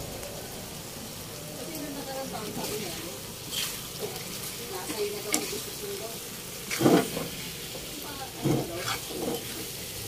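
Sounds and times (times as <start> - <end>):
low steady sizzle: 0.0 - 10.0
spatula stirring stew: 2.5 - 9.8
spatula scraping metal pan: 2.7 - 5.8, 6.6 - 9.8.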